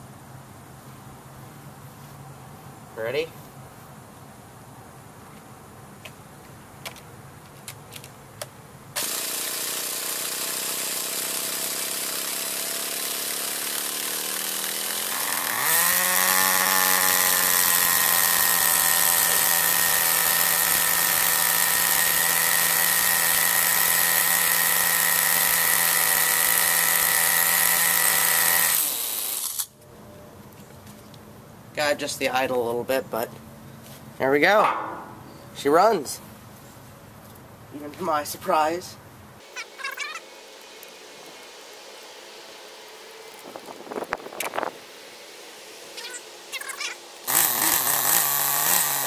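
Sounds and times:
electric starter spinning: 9.0s - 29.7s, 47.3s - 49.0s
small engine running high-pitched: 9.0s - 29.7s, 47.3s - 49.0s.

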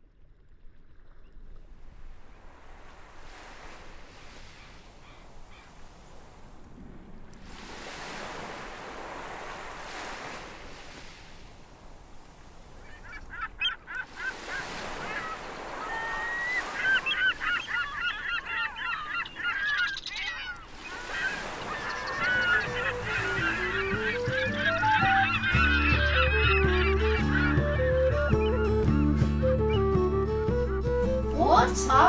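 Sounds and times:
birds chattering: 12.9s - 29.1s
background music: 22.6s - 32.0s.

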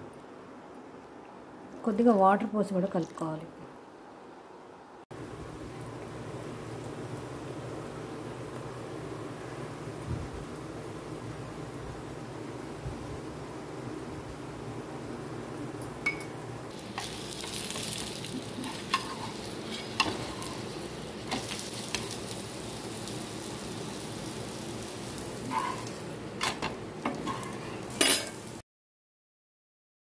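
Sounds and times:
flatbread sizzling on a pan: 5.2s - 14.6s, 15.7s - 28.6s
metal spatula scraping a pan: 18.6s - 20.7s, 25.4s - 26.0s, 27.1s - 28.4s.

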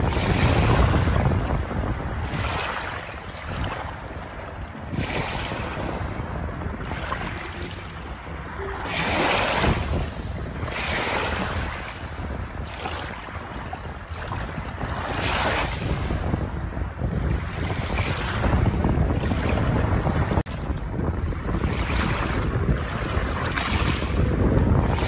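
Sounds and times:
small waves washing over pebbles: 0.0s - 16.4s
wind buffeting microphone: 0.0s - 25.0s.

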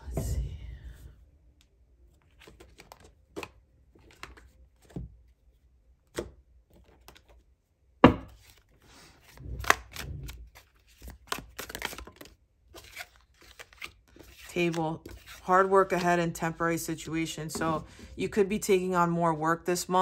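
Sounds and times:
cards shuffling: 2.2s - 5.1s, 6.1s - 7.4s, 8.3s - 16.6s.

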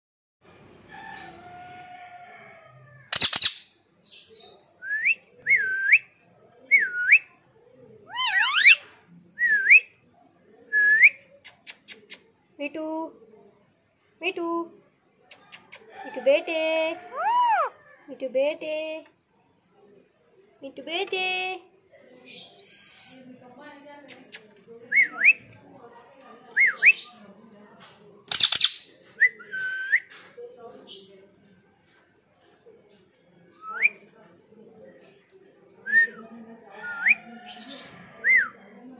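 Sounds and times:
parrot screech: 8.1s - 8.8s
parrot whistling: 8.1s - 8.8s.

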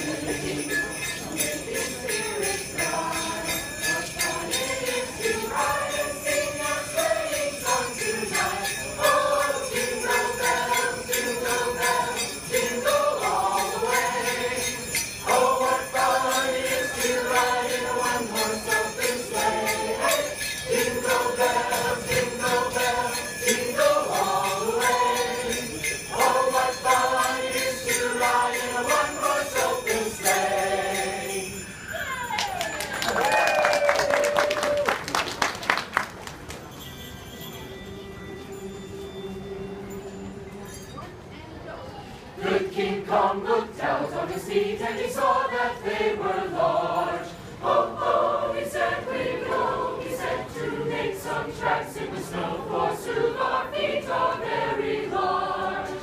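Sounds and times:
choir singing held notes: 0.0s - 31.7s, 42.4s - 56.0s
carol melody: 0.0s - 32.3s, 42.4s - 56.0s
jingle bells shaken: 0.0s - 34.8s, 36.1s - 41.1s.

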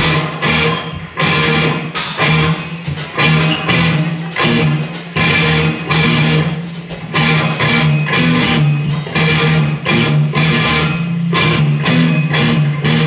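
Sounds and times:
bass guitar line: 0.0s - 13.0s
electric guitar chords: 0.0s - 13.0s
sharp drum hits: 1.9s - 7.8s.

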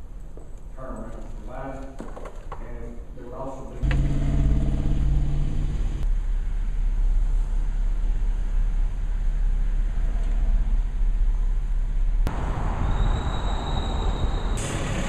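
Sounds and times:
low outdoor rumble: 2.6s - 12.6s.

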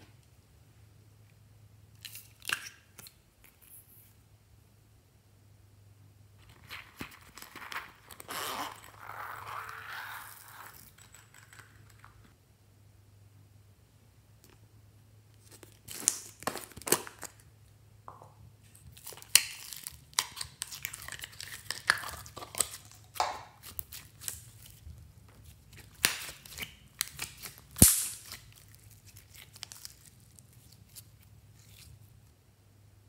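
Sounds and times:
plastic containers crinkling: 18.8s - 31.9s
slime stretching sticky crackles: 25.4s - 32.0s.

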